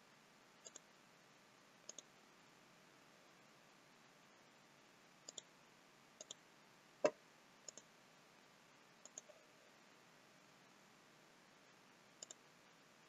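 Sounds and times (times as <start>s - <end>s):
faint background hiss: 0.0s - 13.0s
computer mouse clicking: 0.6s - 0.9s, 1.8s - 2.1s, 5.2s - 5.5s, 6.2s - 6.4s, 7.0s - 7.9s, 9.0s - 9.4s, 12.2s - 12.4s.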